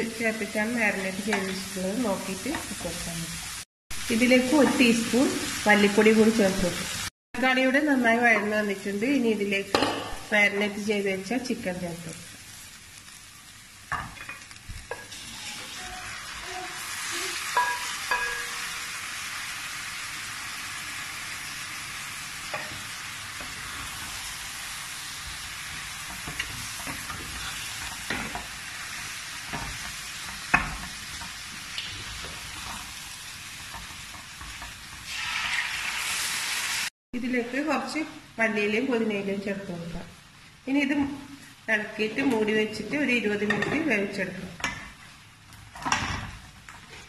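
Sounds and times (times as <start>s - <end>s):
chicken sizzling in a pan: 0.0s - 7.1s, 10.7s - 36.9s.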